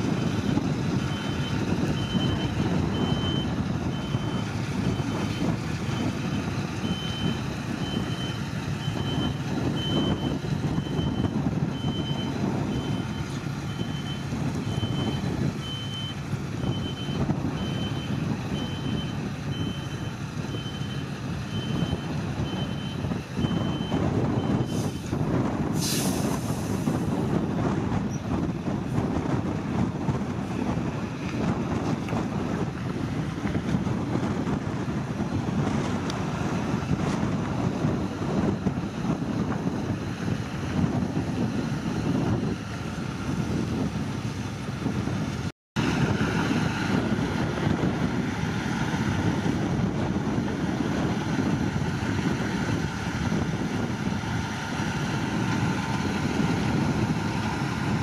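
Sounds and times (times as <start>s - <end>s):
diesel truck engine running: 0.0s - 58.0s
reversing alarm beeping: 1.0s - 6.2s, 6.8s - 24.7s
air hiss: 25.8s - 26.8s.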